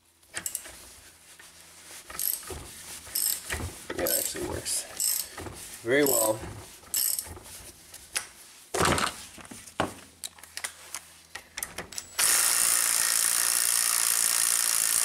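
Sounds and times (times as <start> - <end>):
cordless drill running: 12.2 - 15.0.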